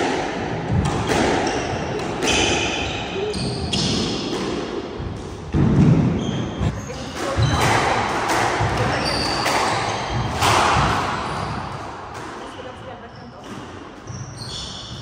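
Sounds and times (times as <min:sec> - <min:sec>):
squash ball hitting rackets and walls: 0:00.0 - 0:15.0
shoes squeaking on hardwood floor: 0:01.5 - 0:04.2, 0:06.1 - 0:07.7, 0:12.4 - 0:15.0.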